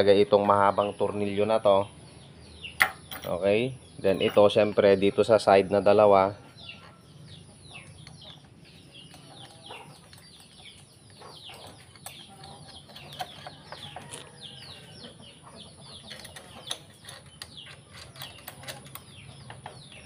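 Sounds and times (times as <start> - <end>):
faint birds chirping: 0.0 - 20.0
small metal parts clicking: 9.0 - 14.3, 16.0 - 19.6.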